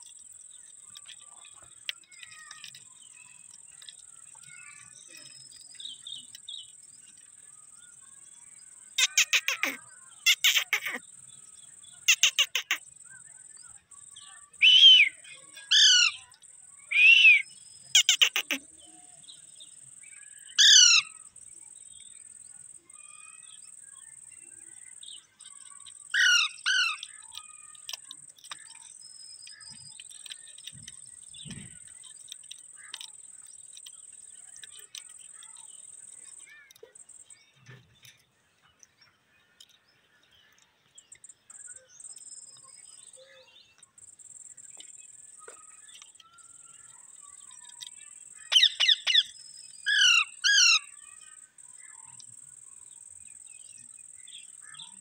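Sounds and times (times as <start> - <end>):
parakeets calling harshly: 9.0 - 11.0, 12.0 - 12.8, 14.6 - 16.2, 16.9 - 18.7, 20.6 - 21.2, 26.0 - 28.0, 48.5 - 49.3, 49.9 - 50.9.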